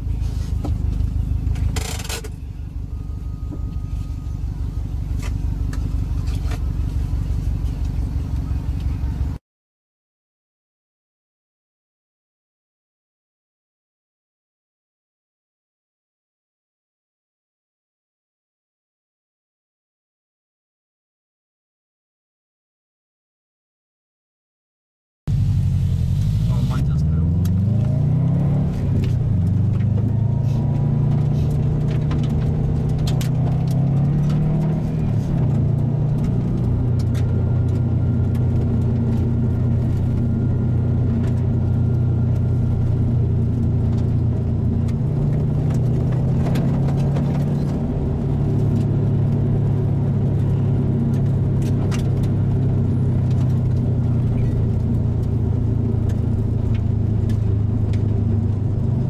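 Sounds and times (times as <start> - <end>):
car engine pulling: 0.0 - 9.4, 25.3 - 59.0
gravel clicks from tyres: 28.7 - 49.7, 50.3 - 59.0.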